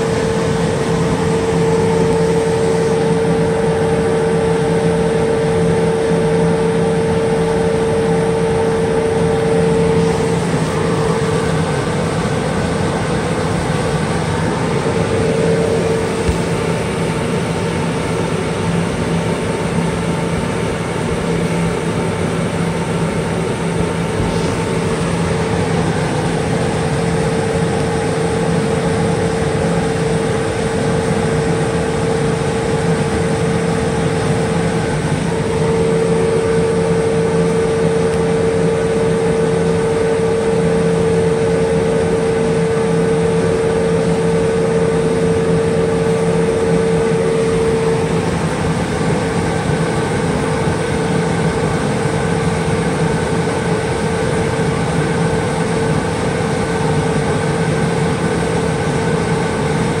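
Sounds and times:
laser cutter mechanical hum: 0.0s - 60.0s.

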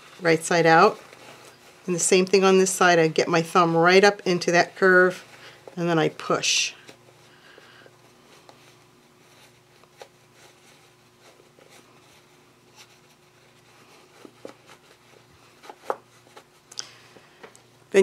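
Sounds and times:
fabric rustling: 0.0s - 18.0s
faint steady hum: 0.0s - 18.0s.

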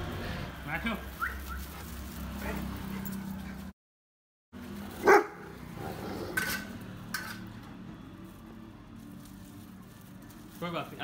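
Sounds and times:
dog barking: 5.0s - 5.5s.

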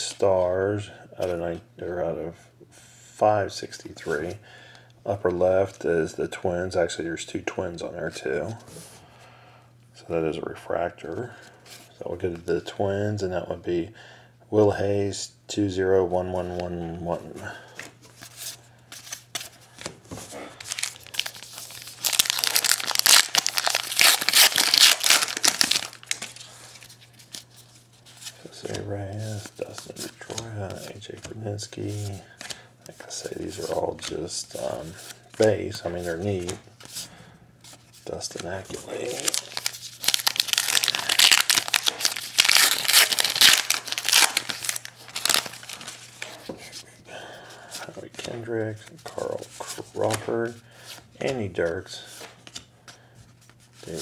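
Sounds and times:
wrapper crinkling and tearing: 20.3s - 28.6s, 38.6s - 46.5s.

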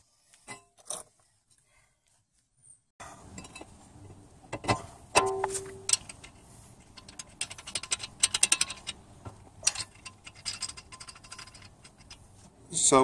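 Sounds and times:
rapid light metallic clicking: 9.6s - 12.3s.

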